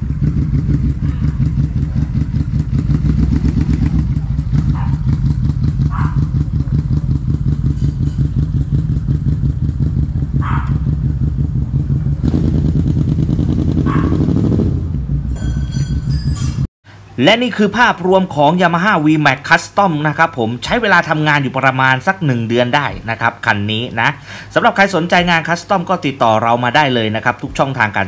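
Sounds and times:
motorcycle engine idling: 0.0 - 16.0.

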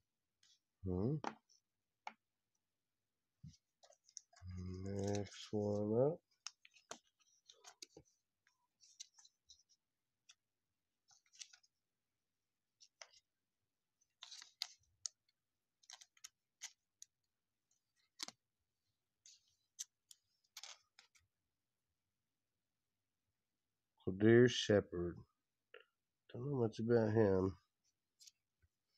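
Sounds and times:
trading cards clicking and rustling: 3.8 - 8.2, 14.1 - 17.1, 19.4 - 21.2.

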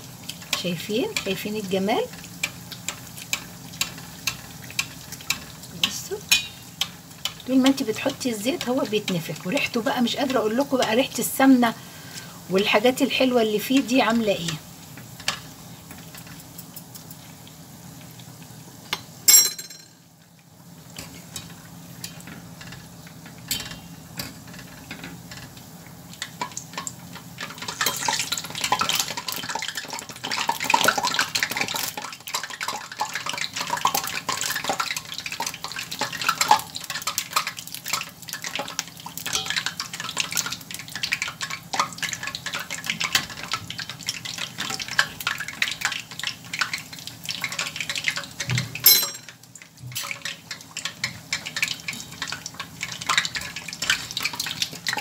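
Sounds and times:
dough sizzling in hot oil: 0.0 - 55.0
metal spoon clinking on pan: 6.3 - 6.6, 18.9 - 20.0, 39.3 - 39.6, 48.8 - 49.4.

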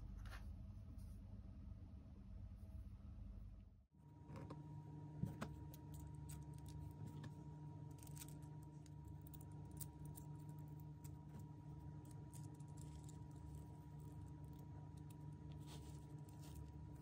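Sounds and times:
steady low hum: 0.0 - 17.0
small metal parts clicking: 7.9 - 15.2.

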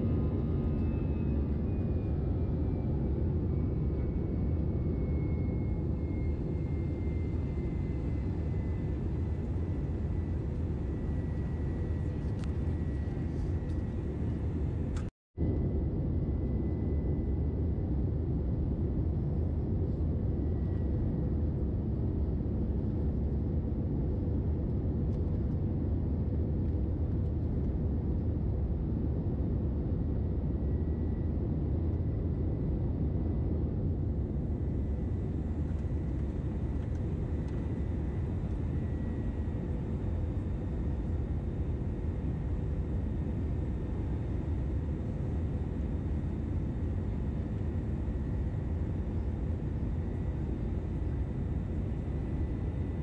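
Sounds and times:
jet engines rumbling: 0.0 - 15.1, 32.2 - 53.0.

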